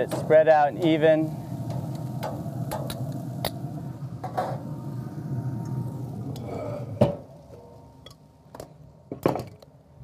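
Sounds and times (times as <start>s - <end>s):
low rumble: 1.3s - 8.0s.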